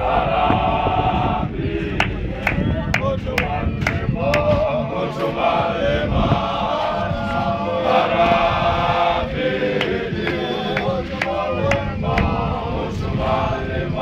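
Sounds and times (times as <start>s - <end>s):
men singing a hymn in unison: 0.0s - 14.0s.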